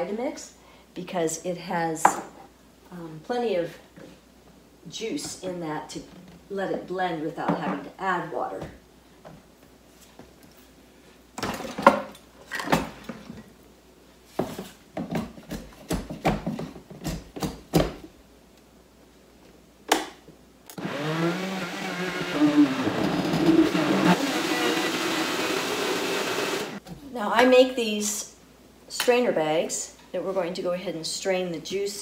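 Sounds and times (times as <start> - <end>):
blender motor running: 20.8 - 26.8.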